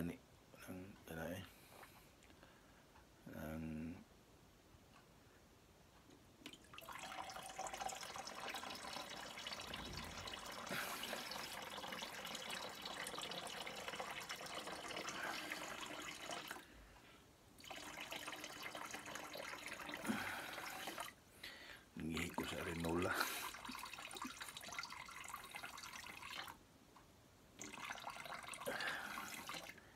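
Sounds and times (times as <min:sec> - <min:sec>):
urine stream into pot: 0:06.5 - 0:16.7, 0:17.6 - 0:21.2, 0:22.0 - 0:26.6, 0:27.6 - 0:29.9.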